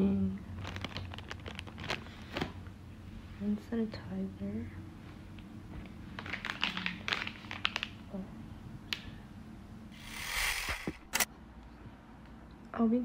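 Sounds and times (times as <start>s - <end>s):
plastic packaging clicks and crinkles: 0.6s - 2.6s, 6.2s - 8.0s
short hiss: 10.0s - 11.3s.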